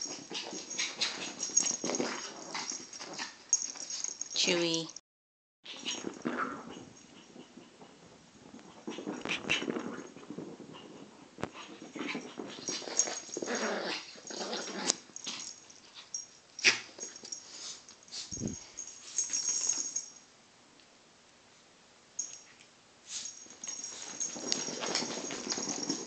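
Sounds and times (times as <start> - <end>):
puppy play-fight noises: 0.0 - 4.5, 5.7 - 20.1, 23.2 - 26.0
paws scuffling on carpet: 23.2 - 26.0.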